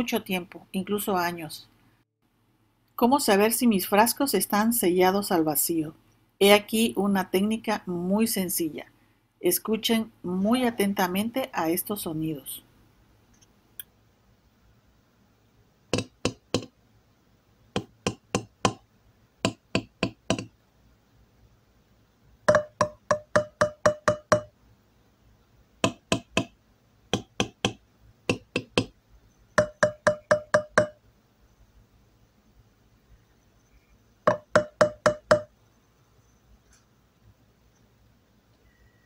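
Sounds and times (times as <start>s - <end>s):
spoon tapping metal jar lids: 29.6s - 31.0s.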